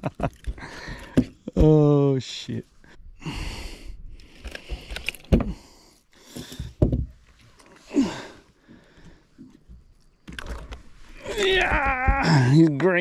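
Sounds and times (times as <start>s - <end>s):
hissy breaths: 0.6s - 1.3s, 2.8s - 6.8s, 7.4s - 9.6s.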